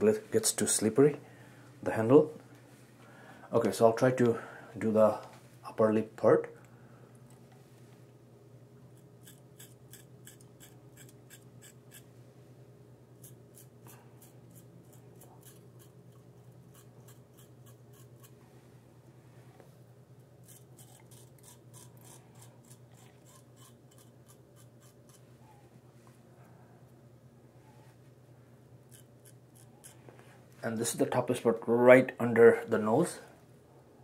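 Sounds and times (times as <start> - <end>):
steady low hum: 0.0 - 34.0
razor scraping stubble: 9.0 - 12.1, 13.2 - 18.4, 20.4 - 25.3, 28.9 - 30.1.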